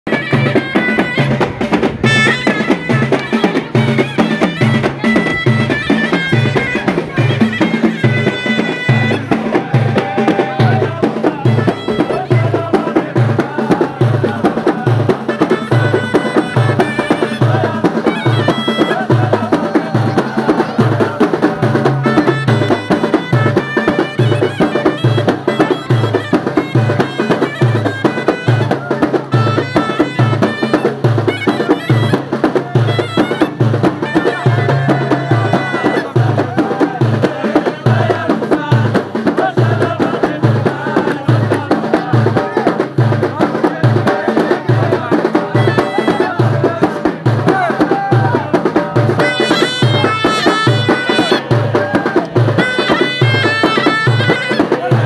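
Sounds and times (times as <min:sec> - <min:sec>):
large drum beating a rhythm: 0:00.1 - 0:55.0
shawm playing a melody: 0:00.1 - 0:55.0.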